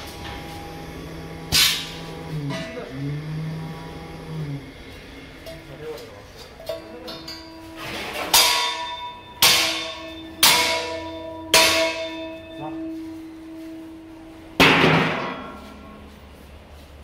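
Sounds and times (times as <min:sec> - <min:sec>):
metallic crash: 0:01.5 - 0:02.8, 0:06.6 - 0:16.1.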